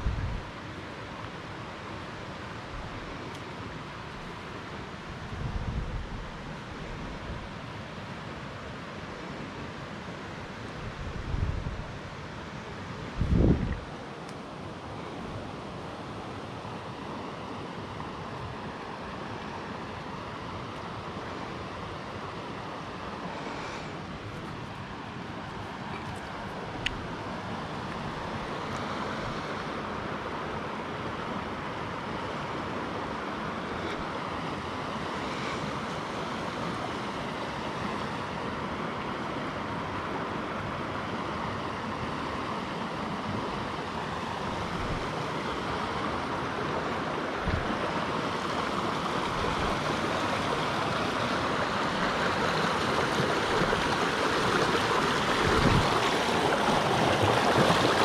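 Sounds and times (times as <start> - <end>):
river rapids rushing over rocks: 13.8 - 58.0.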